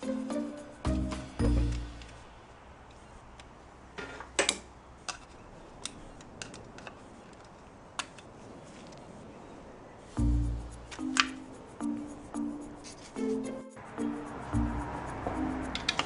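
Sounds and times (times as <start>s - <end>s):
background music: 0.0s - 2.4s, 10.2s - 16.0s.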